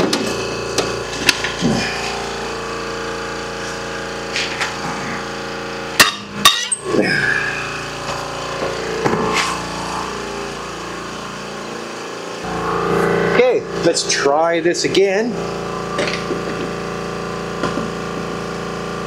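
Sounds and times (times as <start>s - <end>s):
steady hum: 0.0s - 19.0s
sharp metal clanks: 6.0s - 6.8s.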